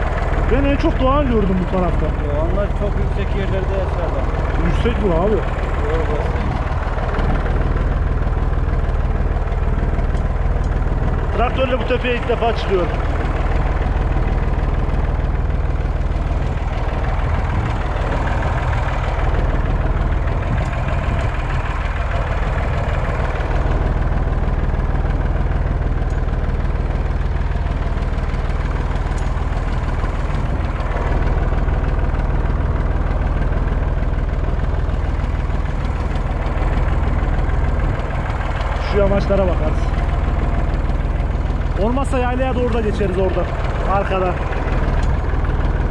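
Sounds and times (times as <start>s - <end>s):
tractor engine running under load: 0.0s - 45.9s.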